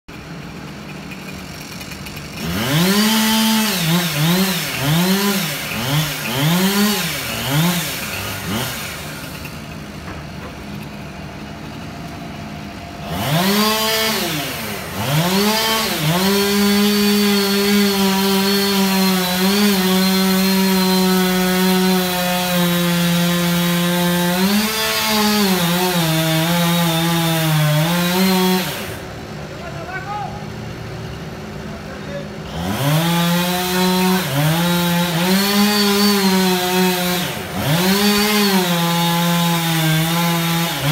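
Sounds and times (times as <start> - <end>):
chainsaw revving: 0.1 - 12.0, 13.0 - 29.2, 32.4 - 40.9.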